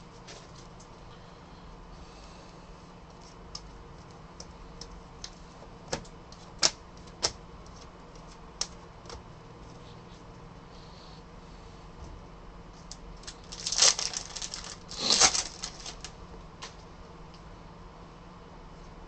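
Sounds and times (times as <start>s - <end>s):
faint steady hum: 0.0s - 19.0s
cards snapping and tapping: 4.8s - 9.2s.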